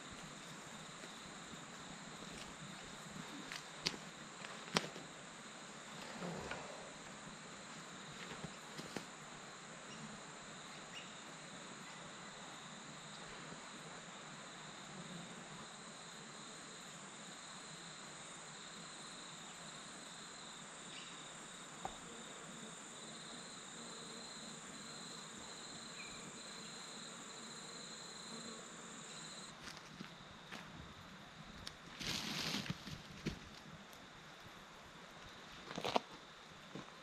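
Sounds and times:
lower pulsing insect trill: 0:00.0 - 0:36.8
faint background hiss: 0:00.0 - 0:37.0
high-pitched insect trill: 0:09.8 - 0:13.8, 0:15.6 - 0:29.8.

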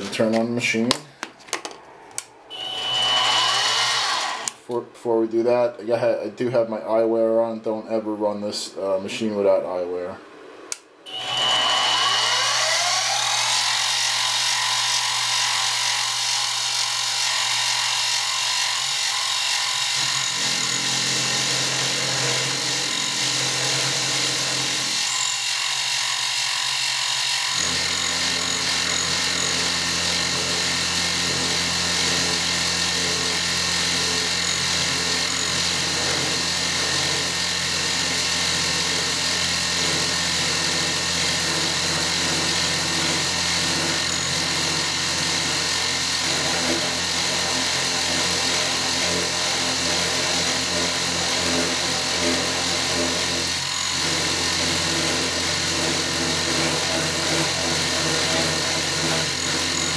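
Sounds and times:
milling machine motor whine: 0:02.5 - 0:04.5, 0:11.1 - 0:21.0
cutter chipping metal: 0:02.5 - 0:04.6, 0:11.1 - 0:59.9.

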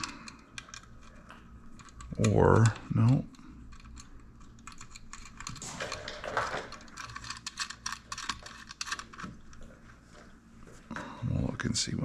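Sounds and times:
small metal parts clinking: 0:00.0 - 0:09.6.

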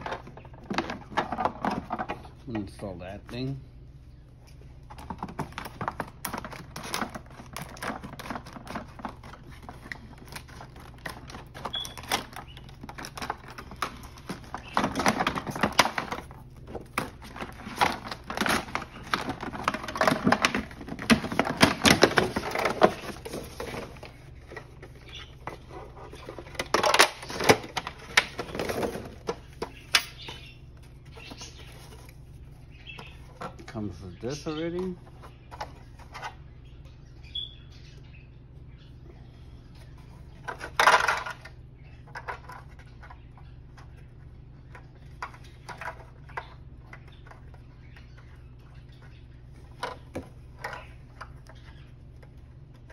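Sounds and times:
low steady hum: 0:00.0 - 0:52.9
plastic packaging crackling: 0:05.0 - 0:30.5.

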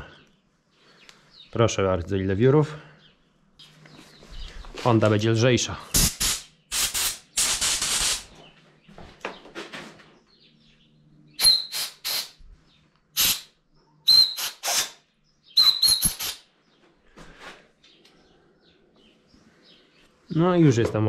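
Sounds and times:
compressed air blow gun blasts: 0:05.9 - 0:08.3, 0:11.4 - 0:12.4, 0:13.2 - 0:15.0, 0:15.6 - 0:16.5
air whistle: 0:11.4 - 0:12.3, 0:14.1 - 0:15.0, 0:15.6 - 0:16.4.

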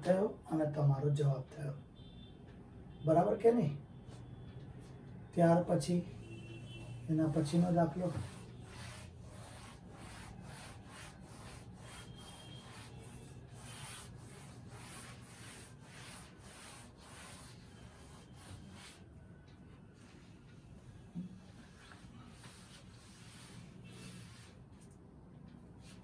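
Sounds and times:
eraser rubbing chalk off blackboard: 0:07.2 - 0:19.0, 0:21.7 - 0:24.9.

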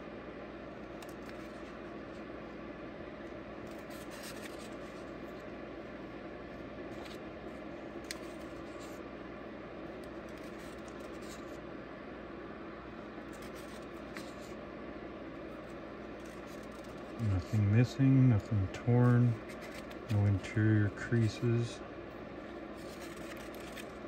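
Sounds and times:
low room hum: 0:00.0 - 0:24.0
pages turning: 0:01.0 - 0:01.8, 0:03.6 - 0:05.1, 0:06.9 - 0:07.2, 0:08.0 - 0:09.0, 0:10.0 - 0:11.6, 0:13.3 - 0:14.6, 0:16.2 - 0:17.6, 0:18.4 - 0:20.4, 0:22.8 - 0:24.0.

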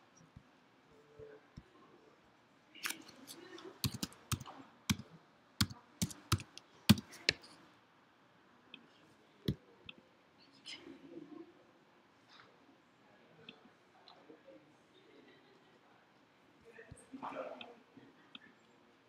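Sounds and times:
keyboard keys clicking: 0:03.8 - 0:05.0, 0:05.6 - 0:07.5.

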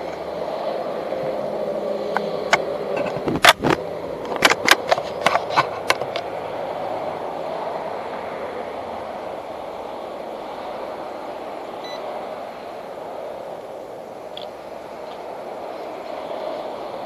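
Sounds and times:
sharp clicks and knocks: 0:02.1 - 0:06.3.

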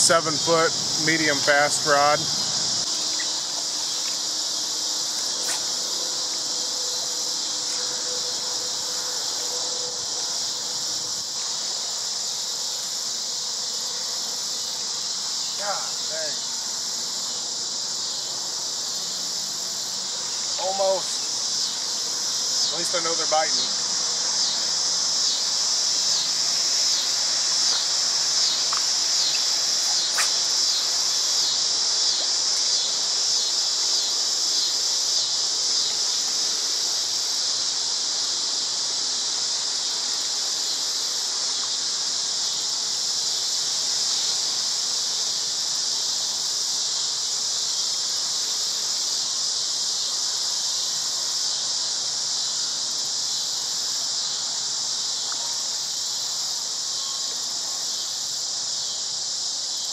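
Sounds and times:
insects singing in high drone: 0:00.0 - 0:59.9.

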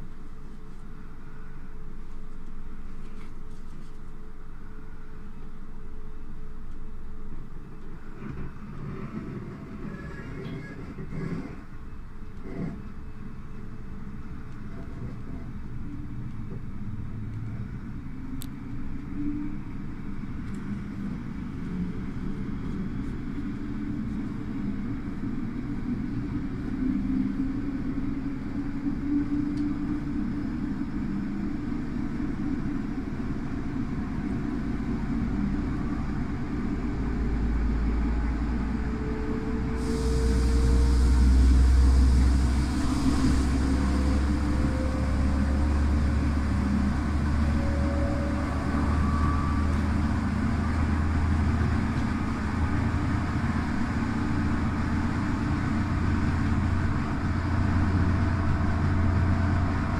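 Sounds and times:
train rumbling along track: 0:00.0 - 0:59.9
faint whine rising in pitch: 0:25.7 - 0:59.9
hiss: 0:39.8 - 0:44.7.

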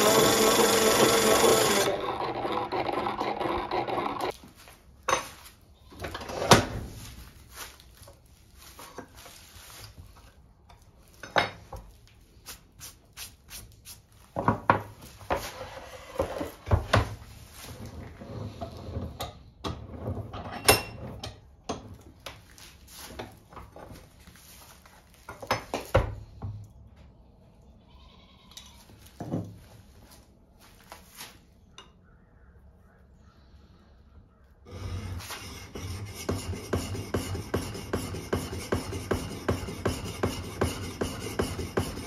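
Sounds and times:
sharpening wheel rubbing: 0:34.7 - 0:42.0.

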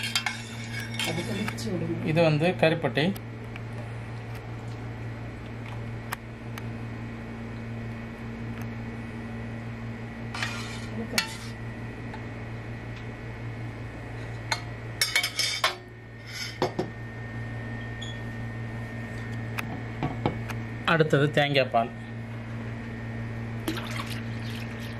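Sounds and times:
metal spoon scraping a pot: 0:00.0 - 0:01.6, 0:10.3 - 0:11.6
steady low hum: 0:00.0 - 0:24.9.

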